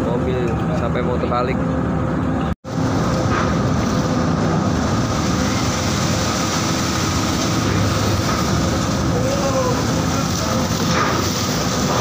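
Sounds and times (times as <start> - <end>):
low rumble of ship machinery: 0.0 - 12.0
seawater rushing across deck: 2.6 - 12.0.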